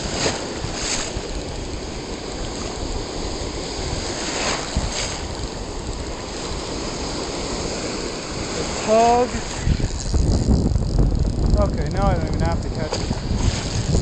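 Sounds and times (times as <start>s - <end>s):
ocean surf washing: 0.0s - 14.0s
wind buffeting microphone: 0.0s - 14.0s
water splashing against camera: 7.4s - 14.0s.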